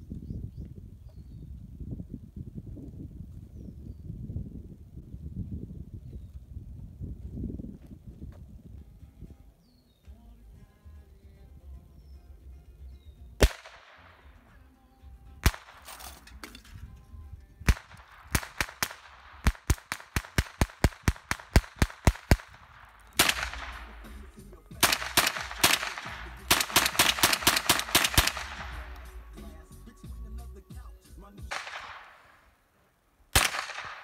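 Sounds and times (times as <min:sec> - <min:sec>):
rifle shots: 0:13.4 - 0:14.5, 0:15.4 - 0:16.7, 0:17.6 - 0:29.3, 0:31.5 - 0:32.6, 0:33.3 - 0:34.0.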